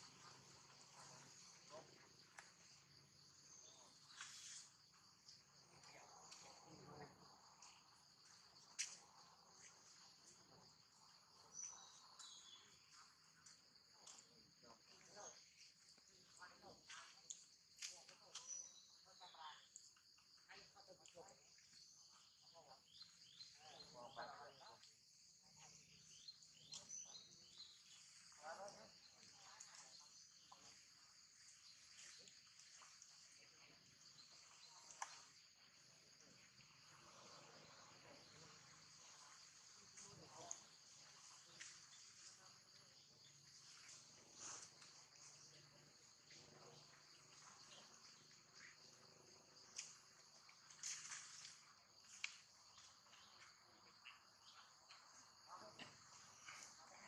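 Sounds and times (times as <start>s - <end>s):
insects chirping: 0.0s - 57.0s
small ticks: 49.6s - 55.2s.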